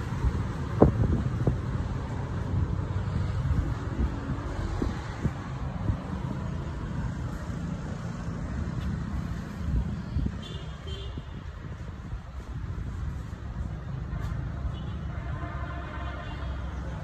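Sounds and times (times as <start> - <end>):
wind buffeting microphone: 0.0 - 8.0, 8.6 - 13.9.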